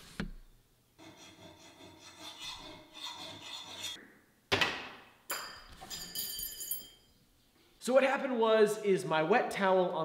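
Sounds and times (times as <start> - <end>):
file scraping steel blade: 1.0 - 4.0.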